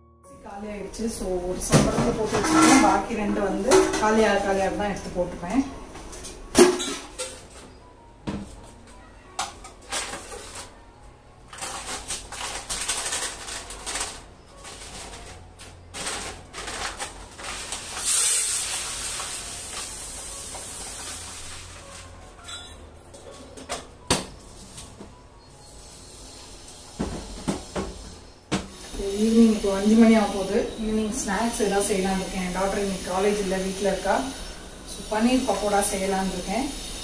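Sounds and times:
steel containers and lids clinking: 1.7 - 4.5, 6.2 - 7.7, 21.0 - 23.9
plastic packaging rustling: 9.8 - 10.8, 11.4 - 20.3
loud rustling hiss: 16.0 - 22.0, 25.6 - 37.0.

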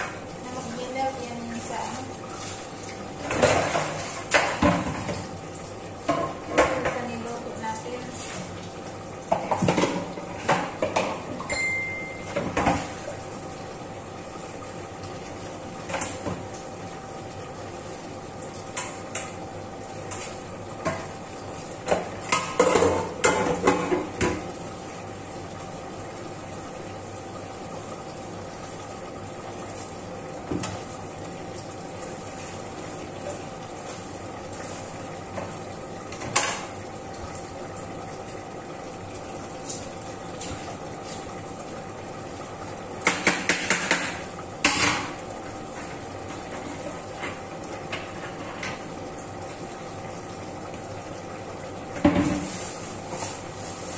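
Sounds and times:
steady background hum: 0.0 - 53.9
pots and pans clattering: 3.2 - 5.3, 6.0 - 7.2, 9.3 - 13.2, 21.8 - 24.6, 35.3 - 36.8, 43.0 - 48.8, 52.0 - 53.4.

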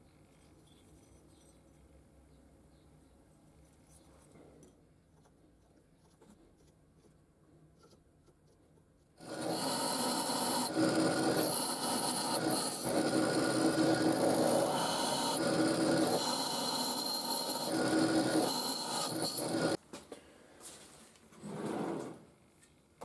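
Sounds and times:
drill boring through steel: 9.2 - 19.8.

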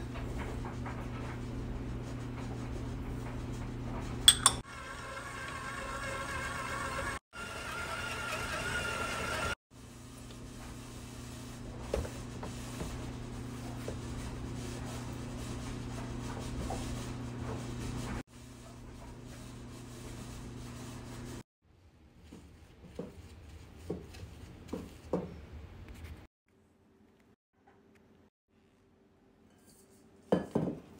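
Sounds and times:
stand mixer motor humming: 4.7 - 9.6.

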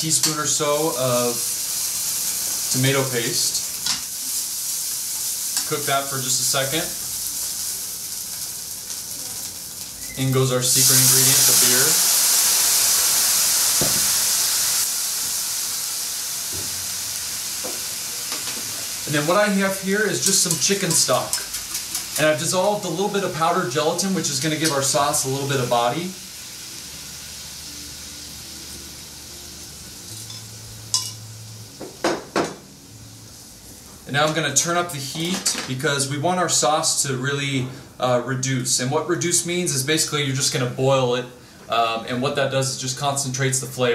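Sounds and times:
beer sizzling in hot pan: 0.0 - 41.1
metal cookware clinks: 30.2 - 31.2.

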